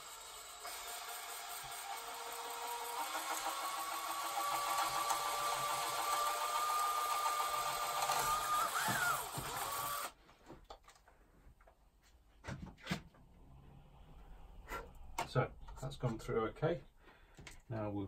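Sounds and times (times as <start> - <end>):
electric drill drilling into wood: 0.0 - 10.2.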